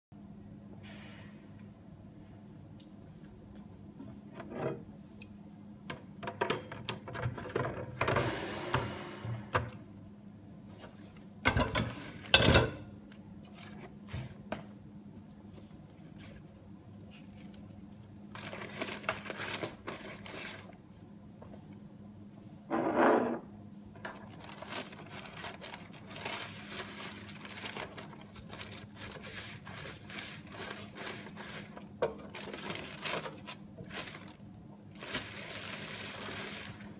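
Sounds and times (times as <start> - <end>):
paper rubbing and scraping: 24.4 - 31.8.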